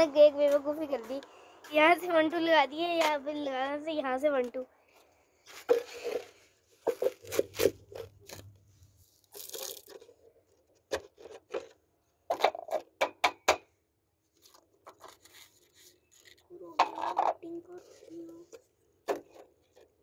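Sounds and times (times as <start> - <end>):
plastic containers clicking and knocking: 9.4 - 13.7, 16.7 - 17.6.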